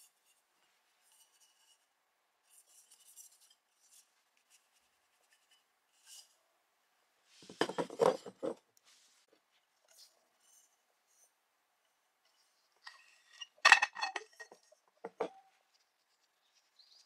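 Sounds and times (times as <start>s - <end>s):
hands rubbing metal bottles: 12.3s - 15.5s.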